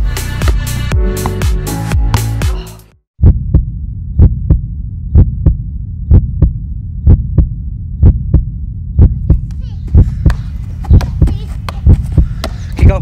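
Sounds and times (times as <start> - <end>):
heartbeat thumps: 3.2 - 13.0.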